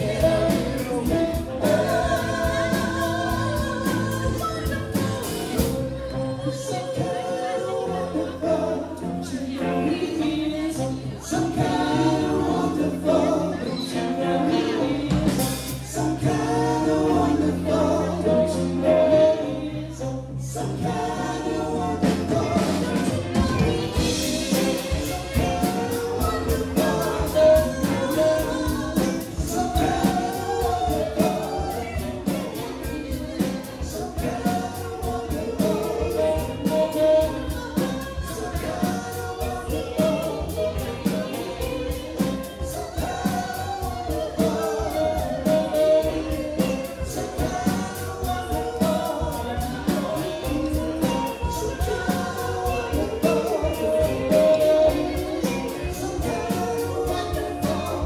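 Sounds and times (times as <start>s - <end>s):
drum kit beat: 0.0s - 6.0s, 14.6s - 17.3s, 21.8s - 58.0s
live rock band playing: 0.0s - 19.5s, 20.8s - 58.0s
woman singing: 0.0s - 58.0s.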